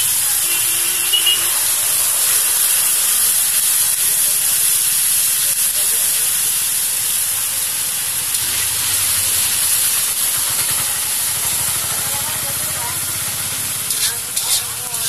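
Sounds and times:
curry sizzling in oil: 0.0 - 15.0
metal spatula stirring: 13.7 - 15.0.

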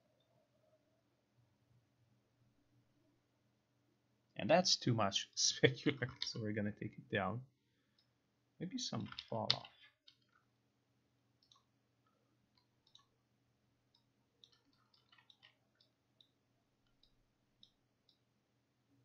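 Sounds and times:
faint low hum: 0.0 - 19.0
computer mouse clicks: 9.0 - 10.4, 11.4 - 11.7, 12.5 - 13.1, 13.9 - 18.2.

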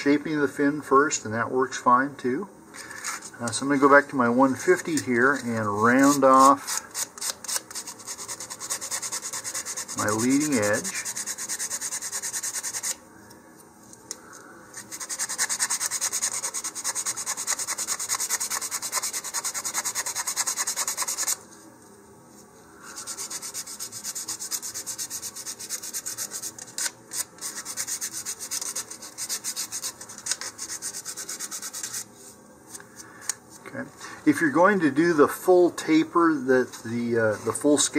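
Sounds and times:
sandpaper rubbing on wood: 4.7 - 13.0, 14.8 - 21.4, 22.9 - 32.1.

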